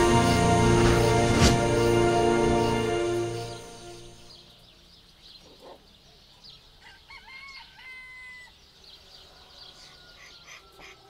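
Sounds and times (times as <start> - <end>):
small birds chirping: 3.3 - 11.0
rooster crowing: 6.8 - 11.0.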